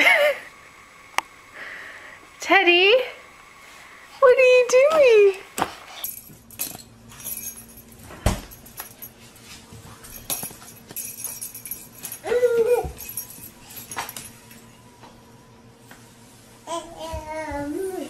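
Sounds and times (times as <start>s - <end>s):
high-pitched whining cry: 12.2s - 13.1s.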